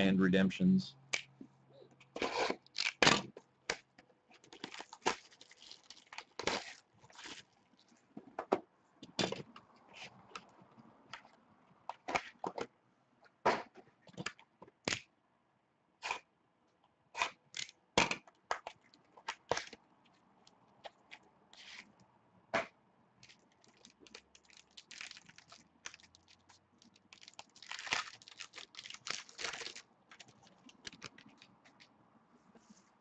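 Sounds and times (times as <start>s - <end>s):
packaging ripping and crinkling: 2.3s - 3.1s, 4.5s - 7.6s, 23.2s - 31.8s.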